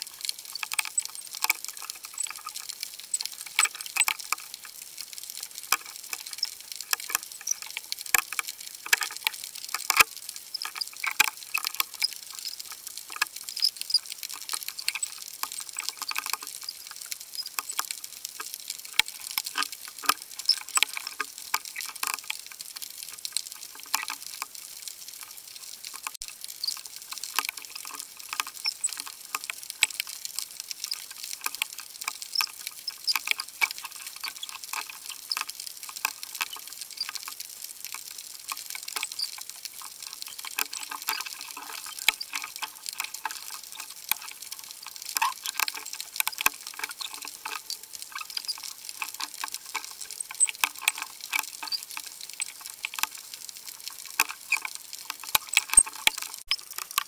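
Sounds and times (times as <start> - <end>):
steady high hiss: 0.0 - 0.2
underwater crackle of clicks: 0.0 - 57.0.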